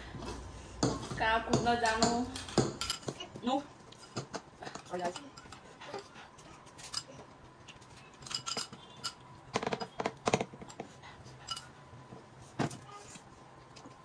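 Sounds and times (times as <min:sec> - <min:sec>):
cutlery clinking on glass bowl: 0:08.2 - 0:10.0.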